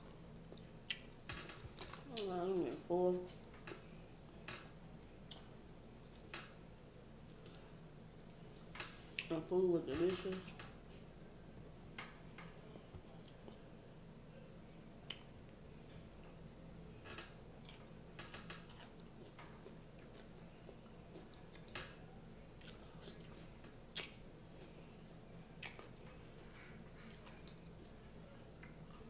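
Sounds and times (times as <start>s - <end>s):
quiet chewing: 0.0s - 3.9s, 5.2s - 6.3s, 7.2s - 9.3s, 12.5s - 13.7s, 17.2s - 29.0s.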